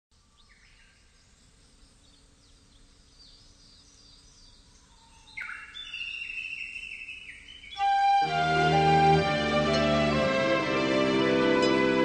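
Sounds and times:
small birds chirping: 0.2 - 8.0
whistled bird song: 2.1 - 10.2.

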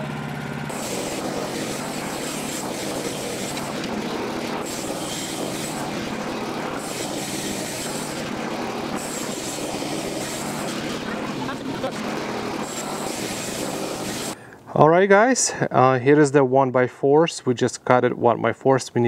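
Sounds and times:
gasoline engine under load: 0.0 - 14.4
band saw blade cutting log: 0.7 - 14.4.

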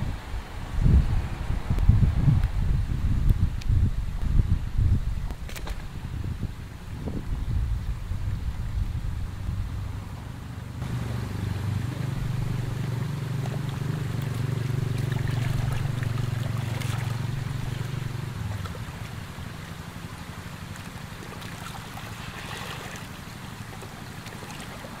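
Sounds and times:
motor engine droning: 9.3 - 25.0
small splashes: 10.8 - 25.0
water sloshing and trickling: 10.8 - 25.0.

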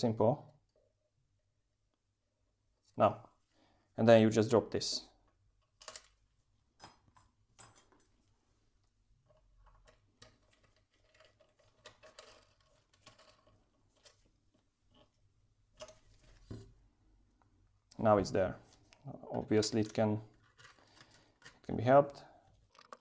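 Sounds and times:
metal nut and bolt clicking: 22.7 - 23.0.

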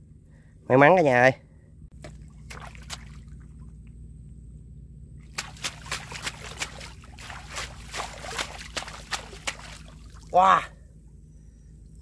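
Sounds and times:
hands splashing in muddy water: 2.0 - 3.7, 5.2 - 10.4.

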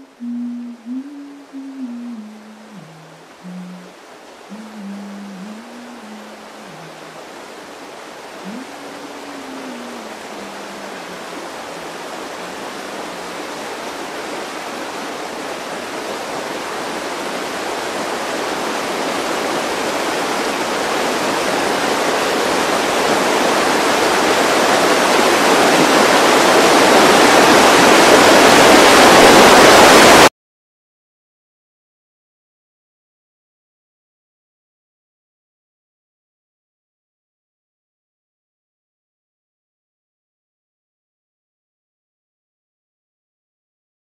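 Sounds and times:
steady rushing noise: 8.4 - 16.6.

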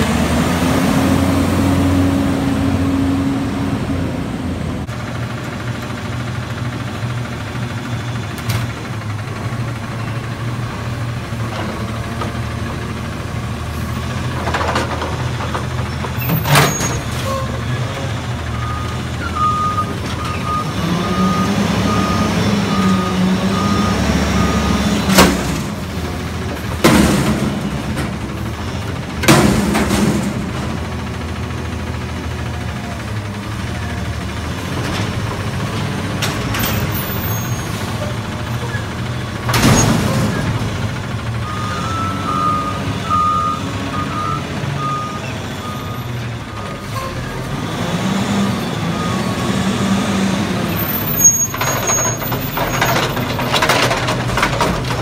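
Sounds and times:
garbage truck engine running: 0.0 - 55.0
reversing alarm beeping: 18.6 - 24.9, 41.4 - 46.2
loud metal dumpster bangs: 29.2 - 30.8
engine revving: 47.4 - 50.7.

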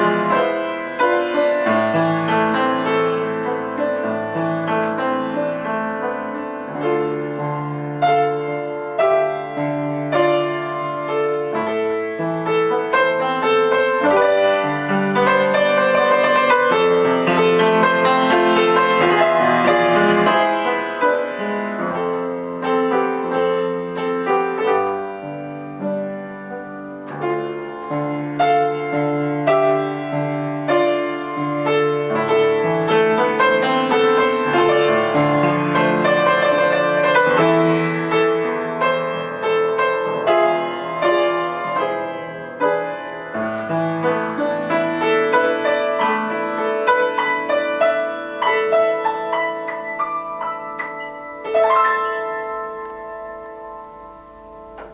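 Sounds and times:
solo piano music: 0.0 - 54.9.

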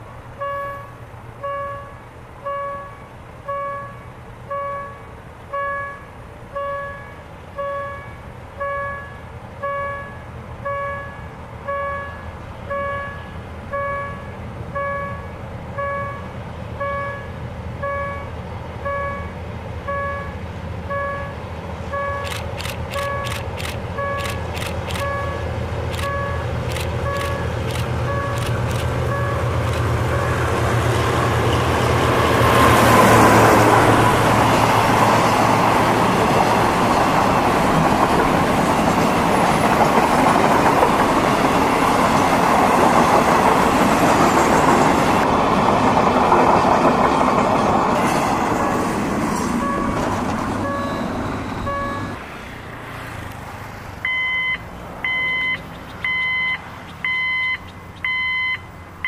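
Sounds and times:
locomotive engine hum: 0.0 - 59.0
electronic crossing alarm beeping: 0.4 - 30.6, 49.5 - 52.2, 54.0 - 59.0
train wheels rumbling on rail: 5.1 - 53.9.

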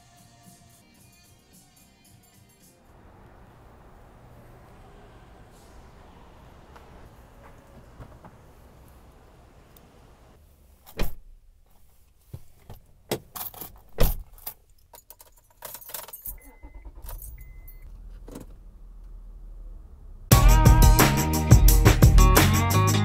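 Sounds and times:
music: 0.0 - 2.9, 20.3 - 23.0
car engine starting and running: 2.9 - 10.4, 16.3 - 20.4
keys jangling: 13.3 - 17.8.

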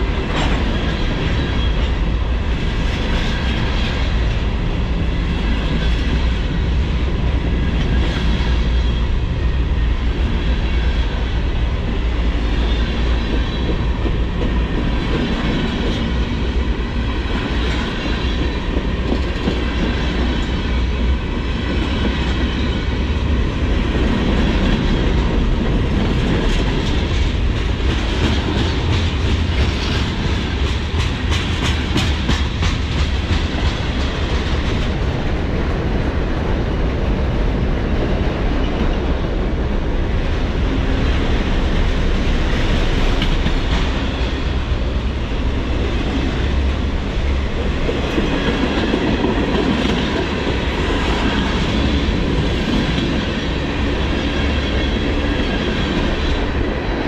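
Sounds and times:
train wheels rumbling on rail: 0.0 - 57.0
wheels clacking over rail joints: 24.0 - 35.8.

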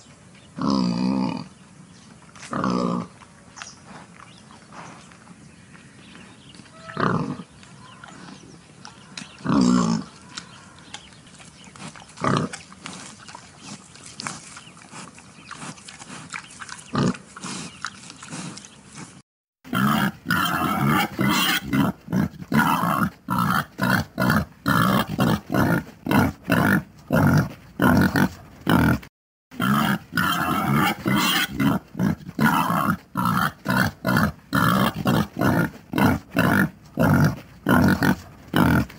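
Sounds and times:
wild boar grunting: 2.4 - 3.2, 6.7 - 38.9.

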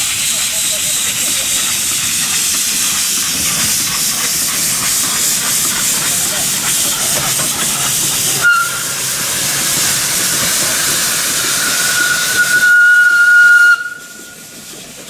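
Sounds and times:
steam hissing from drain cocks: 0.0 - 15.0
steam whistle blowing: 8.4 - 9.0, 11.3 - 14.4.

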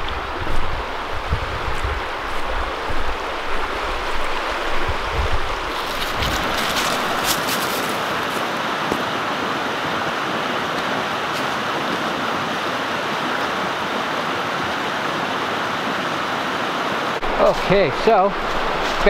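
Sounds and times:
brook rushing: 0.0 - 9.4.

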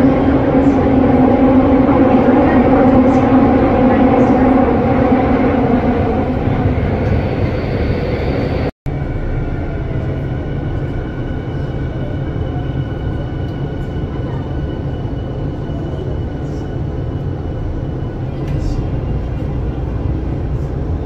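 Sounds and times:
train rumbling inside carriage: 0.0 - 21.0.

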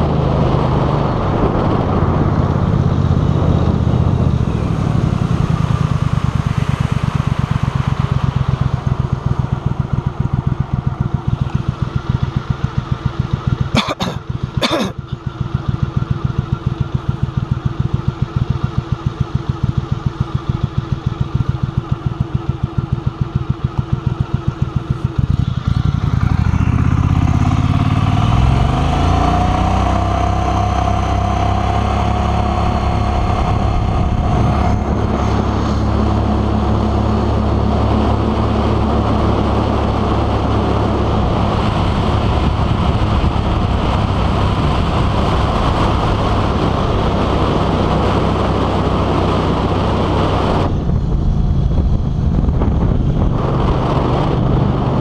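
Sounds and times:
boat motor revving: 25.2 - 55.0.

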